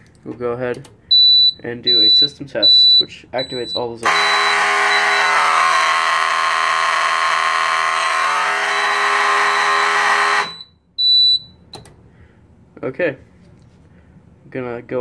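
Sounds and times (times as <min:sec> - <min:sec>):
smoke alarm high beep: 0:01.1 - 0:11.7
alarm horn sounding: 0:03.4 - 0:10.9.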